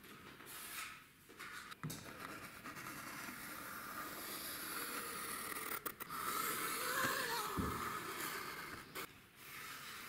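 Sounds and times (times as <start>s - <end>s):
pencil scratching on wall: 2.0s - 10.0s.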